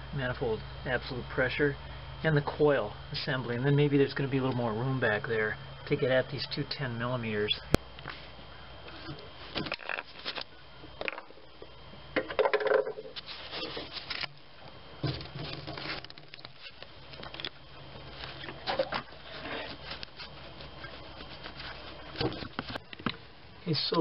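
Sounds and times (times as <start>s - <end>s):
rubber hose rubbing and scraping: 13.2s - 14.3s, 15.0s - 22.8s.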